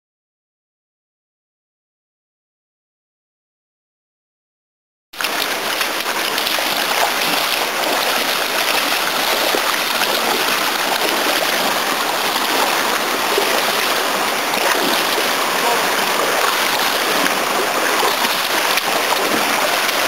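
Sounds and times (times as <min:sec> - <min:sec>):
stream rushing over rocks: 0:05.2 - 0:20.0.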